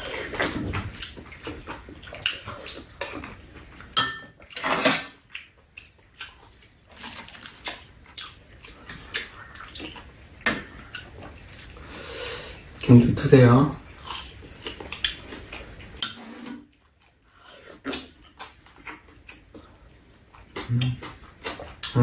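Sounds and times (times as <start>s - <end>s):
utensils clinking against bowls: 4.0s - 5.2s, 10.4s - 10.8s, 16.0s - 16.3s.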